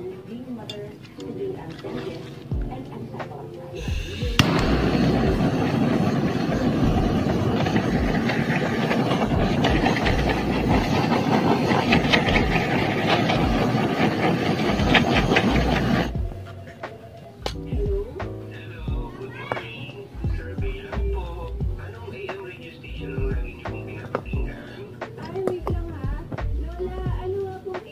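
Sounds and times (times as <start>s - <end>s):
blowtorch hissing: 3.7s - 17.4s.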